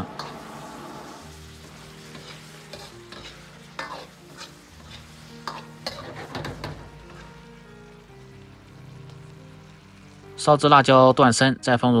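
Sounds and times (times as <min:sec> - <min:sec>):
spatula scraping a wok: 0:00.0 - 0:07.4
sauce sizzling: 0:00.0 - 0:11.5.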